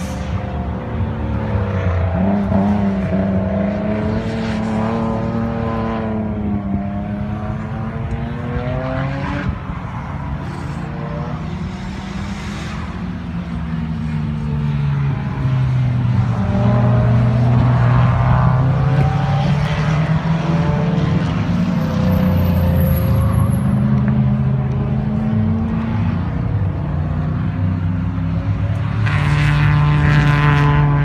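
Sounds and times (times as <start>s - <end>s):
race car engines accelerating: 0.0s - 31.0s.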